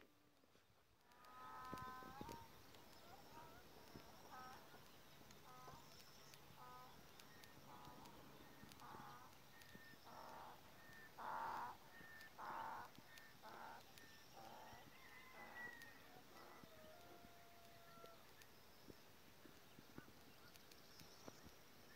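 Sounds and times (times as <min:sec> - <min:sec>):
short animal calls: 0:06.6 - 0:18.2.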